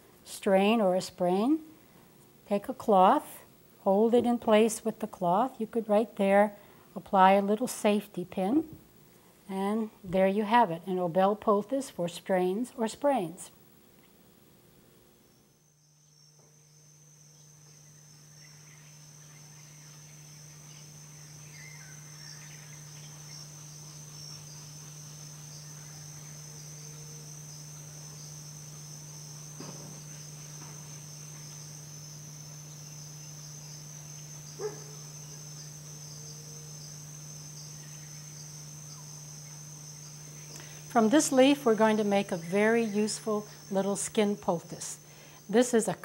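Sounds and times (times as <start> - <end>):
low steady hum: 0.0 - 46.0
crickets chirping: 10.2 - 46.0.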